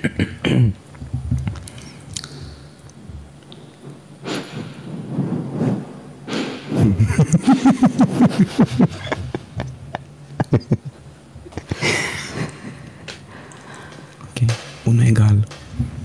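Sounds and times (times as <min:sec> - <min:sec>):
breathy exhale: 0:04.2 - 0:05.1, 0:06.2 - 0:06.9, 0:11.8 - 0:14.2
person laughing: 0:06.8 - 0:13.2.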